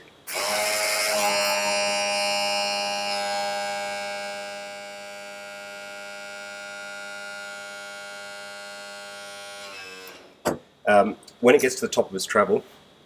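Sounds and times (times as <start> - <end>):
electric motor and pump whine: 0.3 - 10.4.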